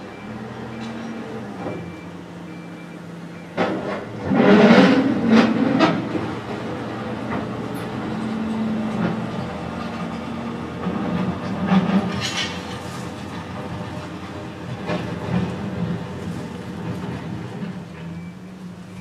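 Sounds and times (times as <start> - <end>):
excavator diesel engine humming: 0.0 - 19.0
bucket scraping and crashing road: 3.6 - 7.6, 8.9 - 17.8.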